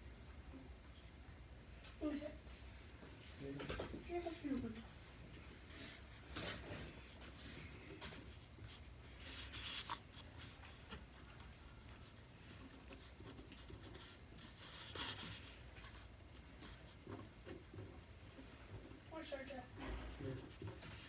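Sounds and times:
pen scratching on paper: 12.7 - 16.0.

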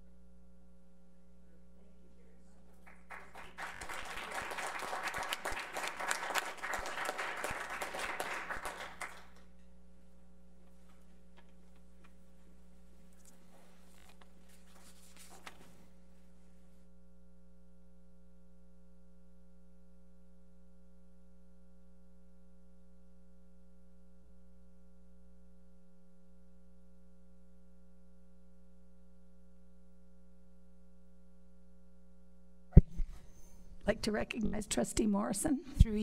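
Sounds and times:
faint applause: 2.8 - 9.4.

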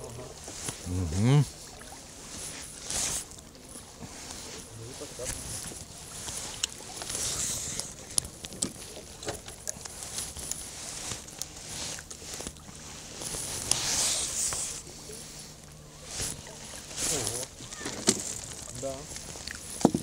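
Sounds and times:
water lapping against boat: 0.0 - 20.0
clicks and knocks on boat: 6.5 - 10.6, 17.2 - 20.0.

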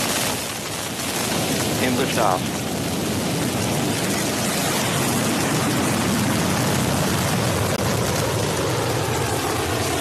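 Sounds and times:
rocket engine roaring: 0.0 - 10.0.

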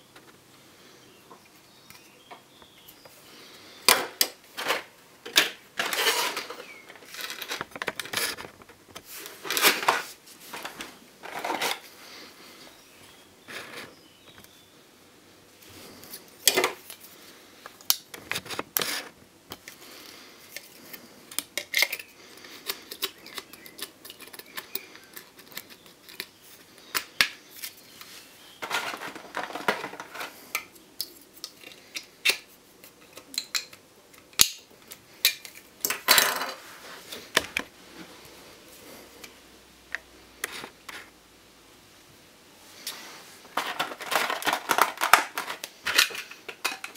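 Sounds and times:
plastic parts clicking and knocking: 3.8 - 11.8, 28.6 - 36.6, 43.5 - 46.9
plastic packaging crinkling: 5.8 - 11.9, 43.5 - 46.9.

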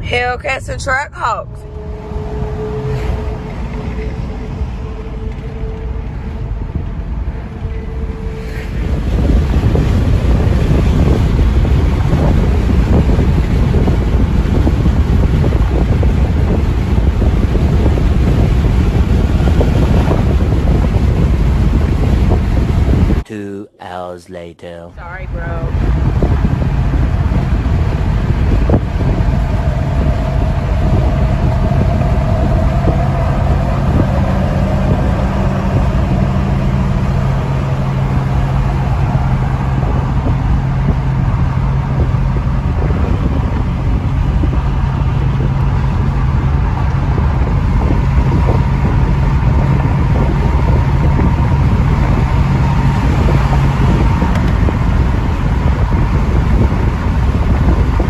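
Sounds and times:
car road and engine noise: 0.0 - 58.0.

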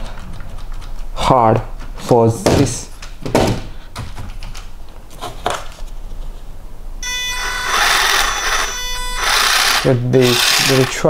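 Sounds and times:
electric motor whine and gear whirr: 7.0 - 11.0.

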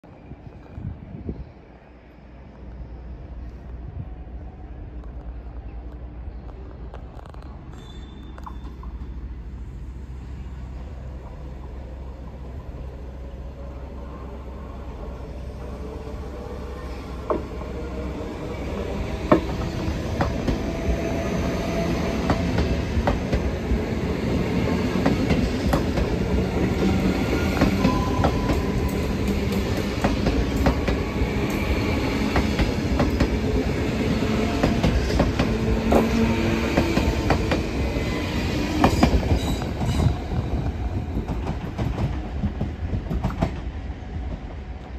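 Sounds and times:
rumble of wheels on rail: 0.0 - 44.9
wheel squeal: 7.7 - 8.8.

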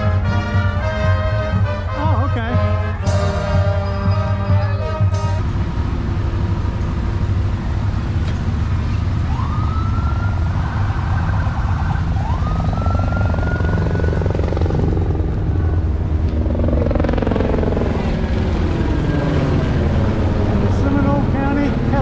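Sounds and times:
vehicle engines rumbling: 0.0 - 22.0
siren wailing: 9.1 - 21.1.

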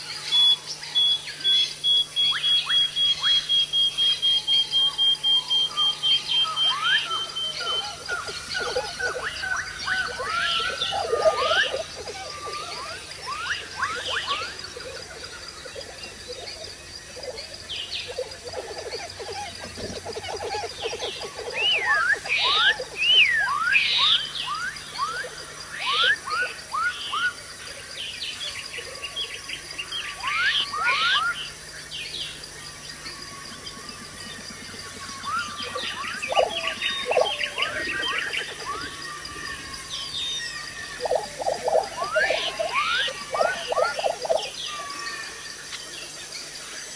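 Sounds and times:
high insect-like hum: 0.0 - 46.9
chirping animal calls: 5.6 - 27.3, 33.6 - 45.4
fast low pulsing calls: 33.5 - 45.2.

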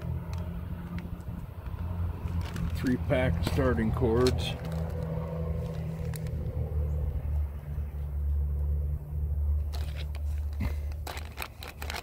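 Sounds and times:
steady low rumble: 0.0 - 12.0
plastic bag crinkling: 0.2 - 6.7, 9.6 - 12.0.

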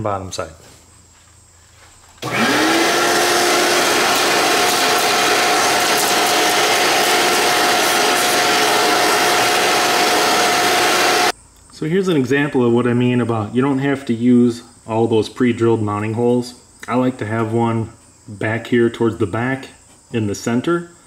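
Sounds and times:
shop vacuum running: 2.2 - 11.3
vacuum sucking up shavings: 2.2 - 11.3.

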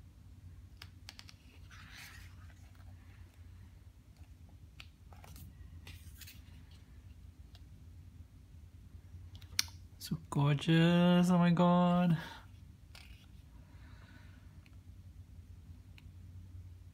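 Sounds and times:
low steady hum: 0.0 - 16.9.

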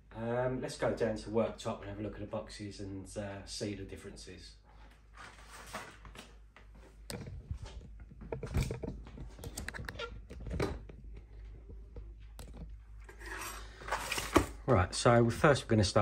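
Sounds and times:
cardboard boxes set down: 13.8 - 14.6.

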